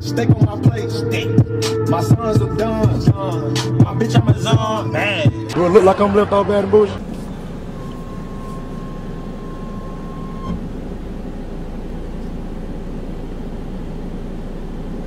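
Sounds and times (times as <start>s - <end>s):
car engine rumble in cabin: 0.0s - 15.0s
faint steady tone: 7.0s - 12.5s.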